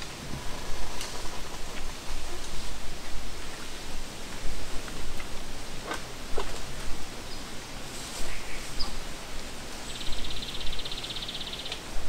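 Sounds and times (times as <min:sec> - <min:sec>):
wind rustling leaves: 0:00.0 - 0:12.0
high bird trill: 0:09.9 - 0:11.8
sharp bird calls: 0:09.9 - 0:11.8.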